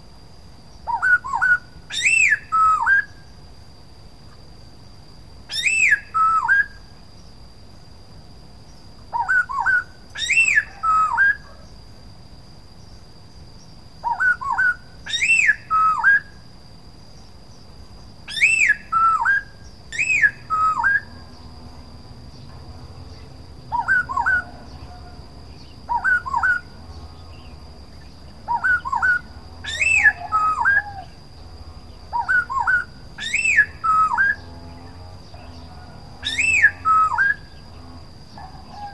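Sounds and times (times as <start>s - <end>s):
bird singing whistled phrases: 0.9s - 3.2s, 5.5s - 6.8s, 9.2s - 11.5s, 14.1s - 16.3s, 18.3s - 21.1s, 23.7s - 24.5s, 25.9s - 26.7s, 28.5s - 31.1s, 32.2s - 34.4s, 36.2s - 37.4s.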